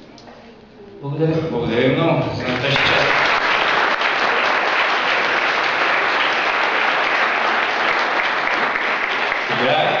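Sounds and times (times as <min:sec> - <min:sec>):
audience applauding: 0:02.4 - 0:10.0.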